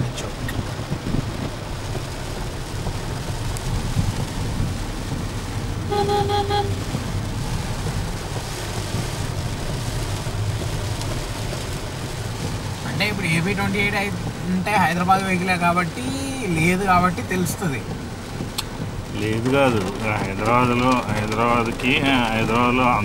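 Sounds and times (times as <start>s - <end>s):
car driving rumble: 0.0s - 23.0s
rain on car windows: 0.0s - 23.0s
vehicle horn beeps: 5.9s - 6.8s.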